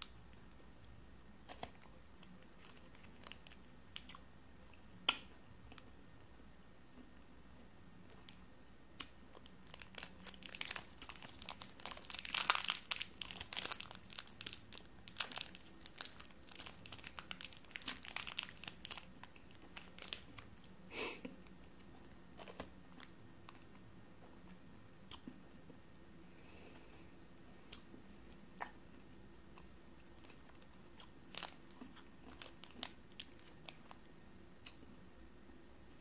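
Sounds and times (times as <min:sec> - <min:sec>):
foil wrapper crinkling: 0:01.5 - 0:03.6, 0:09.4 - 0:20.6, 0:31.3 - 0:34.0.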